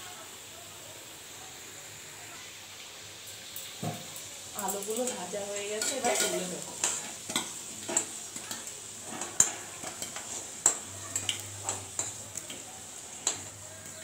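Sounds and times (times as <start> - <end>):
oil sizzling: 0.0 - 14.0
metal spatula clacking on metal: 3.6 - 14.0.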